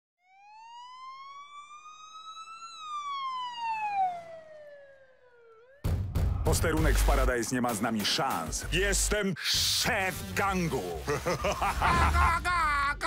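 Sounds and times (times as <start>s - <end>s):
police siren wail: 0.2s - 5.9s.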